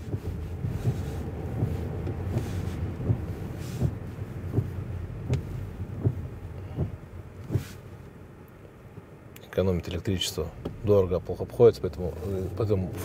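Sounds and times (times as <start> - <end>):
short soft thumps: 0.0 - 8.2, 10.5 - 11.1
engine and road rumble: 0.0 - 13.0.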